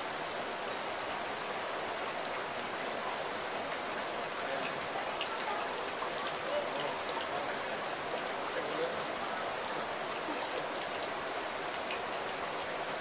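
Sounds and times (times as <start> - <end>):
trickling water: 0.0 - 13.0
water drips ticking: 4.6 - 13.0.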